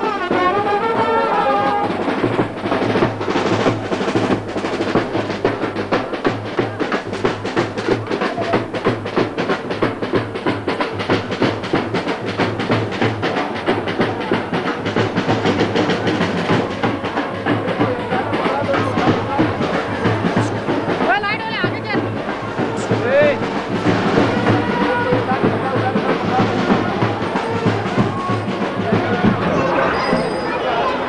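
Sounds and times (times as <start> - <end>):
brass horn melody: 0.0 - 3.4, 22.6 - 29.8
rapid steady drumming: 0.0 - 30.4.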